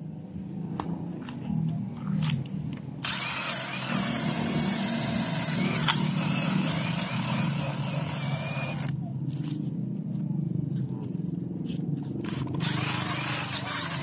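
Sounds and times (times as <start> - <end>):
cordless drill boring into wood: 3.0 - 8.9, 12.3 - 14.0.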